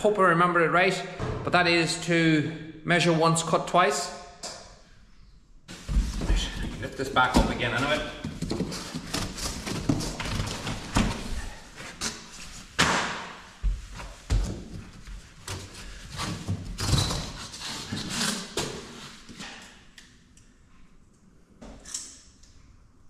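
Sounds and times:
mats scuffing: 13.5s - 15.3s.

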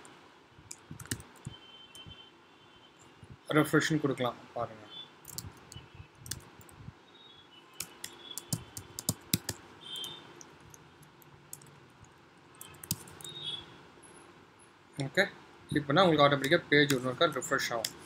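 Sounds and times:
keyboard typing: 0.7s - 2.2s, 5.2s - 6.8s, 7.8s - 13.6s, 16.3s - 18.0s.

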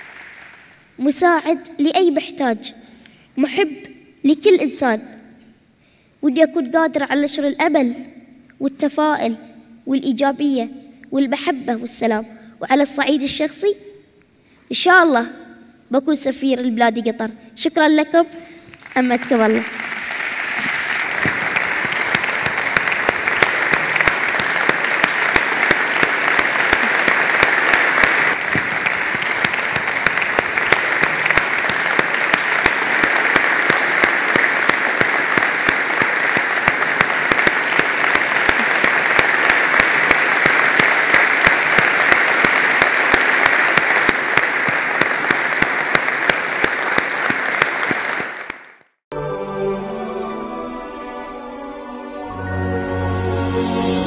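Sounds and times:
audience applauding: 0.0s - 0.9s, 18.7s - 48.8s.

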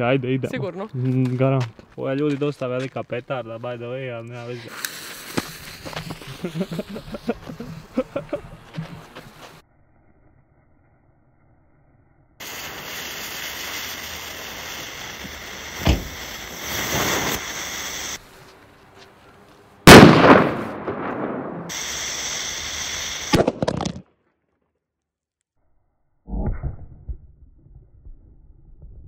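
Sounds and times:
firecracker fuse hissing: 4.4s - 9.6s, 12.4s - 18.4s, 21.7s - 23.4s
firecracker bang: 12.4s - 18.2s, 19.9s - 23.5s
sharp pop: 15.8s - 16.2s.

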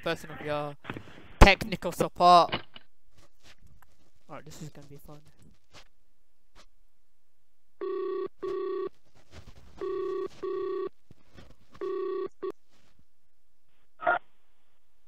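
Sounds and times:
telephone ringback tone: 7.8s - 8.9s, 9.8s - 11.0s, 11.8s - 12.6s.

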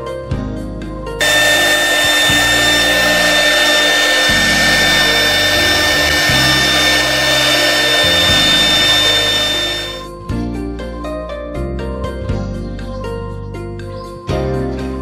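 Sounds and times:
hiss of wood cutting: 1.2s - 10.1s
router spindle whine: 1.2s - 10.1s.

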